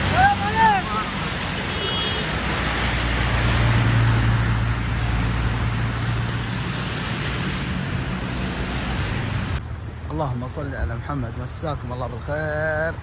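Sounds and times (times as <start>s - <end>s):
tyres hissing on wet road: 0.0s - 9.6s
truck engine drone: 0.0s - 9.7s.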